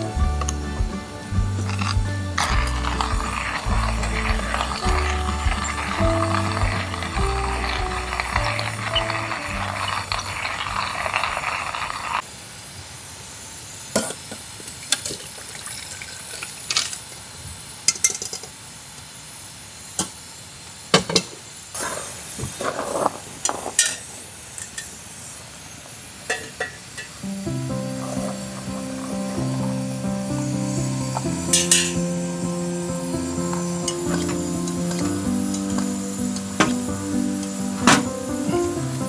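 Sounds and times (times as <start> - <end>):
metal pot and utensil clinking: 1.6 - 12.1, 23.4 - 25.0, 26.3 - 27.3, 28.0 - 29.8, 31.2 - 32.0, 33.9 - 36.9.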